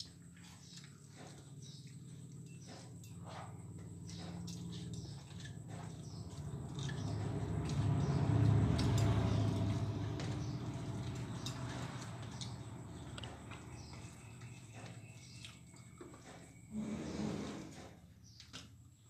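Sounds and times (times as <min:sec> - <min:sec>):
fingers working food on steel plates: 0:00.0 - 0:16.6
wet chewing and lip-smacking: 0:04.2 - 0:09.3.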